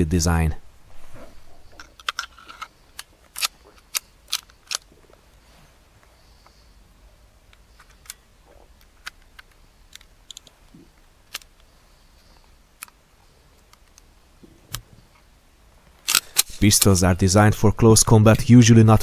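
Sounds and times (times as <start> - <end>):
metallic clicks of pistol parts: 1.8 - 4.9, 7.5 - 10.6, 11.2 - 11.7, 16.0 - 16.9.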